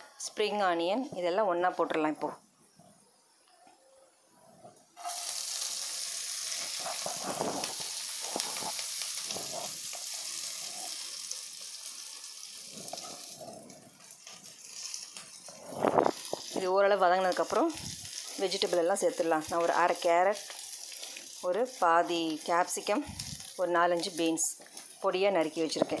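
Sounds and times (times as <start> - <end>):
spatula stirring pan: 5.0 - 11.8
vegetables sizzling in hot oil: 5.0 - 26.0.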